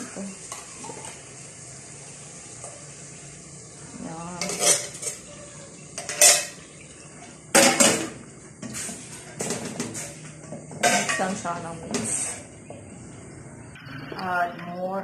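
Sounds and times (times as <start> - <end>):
metal kitchenware scraping: 4.1 - 6.7, 7.5 - 12.6, 13.8 - 15.0.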